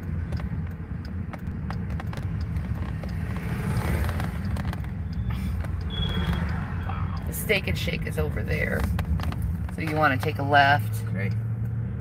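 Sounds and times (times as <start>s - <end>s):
road and engine rumble inside car: 0.0s - 12.0s
truck passing close by: 2.2s - 8.1s.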